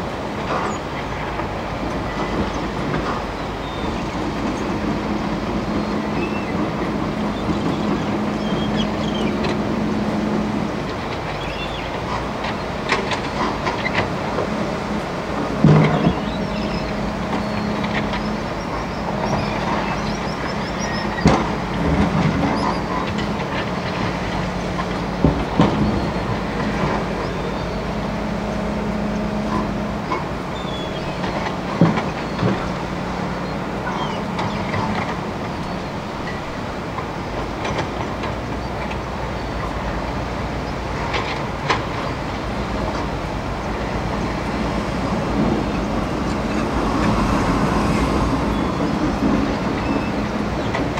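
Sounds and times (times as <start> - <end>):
excavator diesel engine running: 0.0 - 50.9
river water rushing: 0.0 - 50.9.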